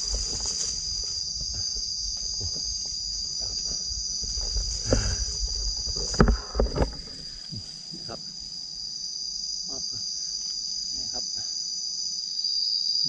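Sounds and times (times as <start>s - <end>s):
thumps and rustles: 0.0s - 7.8s
insects chirring: 0.0s - 13.0s.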